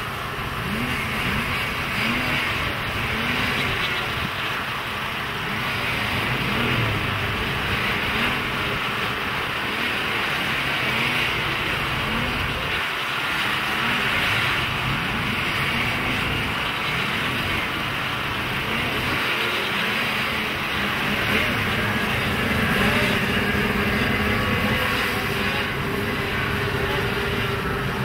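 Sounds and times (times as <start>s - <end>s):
snowmobile engines revving: 0.0s - 28.0s.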